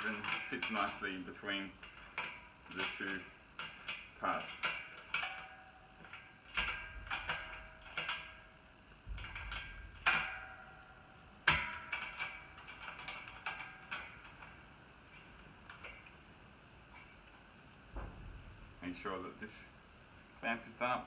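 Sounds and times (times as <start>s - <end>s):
metal fittings clinking and knocking: 0.0s - 1.2s, 1.8s - 8.5s, 9.1s - 16.2s.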